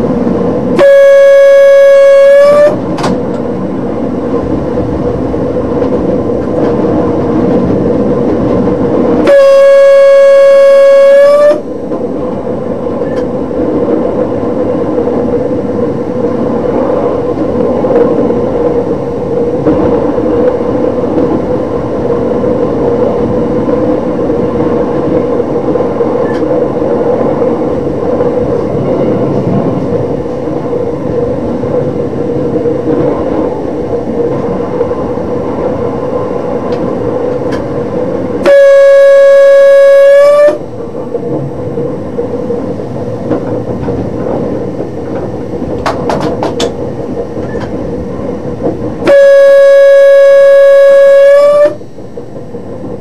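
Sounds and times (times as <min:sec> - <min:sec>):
train running noise: 0:00.0 - 0:53.0
train horn blast: 0:00.8 - 0:02.8, 0:09.2 - 0:11.7, 0:38.4 - 0:40.7, 0:49.0 - 0:51.8.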